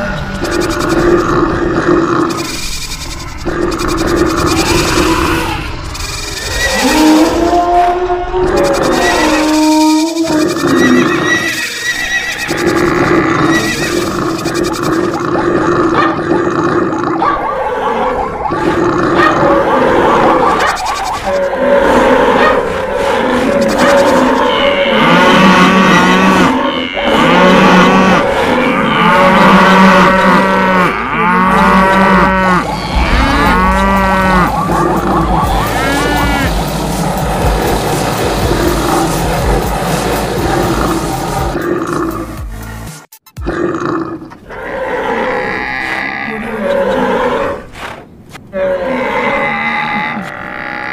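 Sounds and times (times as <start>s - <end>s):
cattle mooing: 6.4s - 17.1s, 21.3s - 39.3s, 48.5s - 50.9s.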